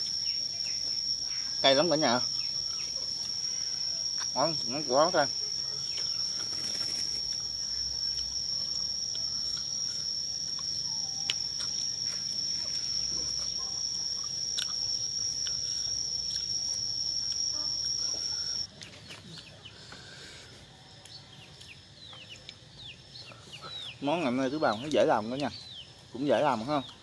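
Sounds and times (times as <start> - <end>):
faint bird chirps: 0.0 - 19.8
insect high-pitched drone: 0.0 - 27.0.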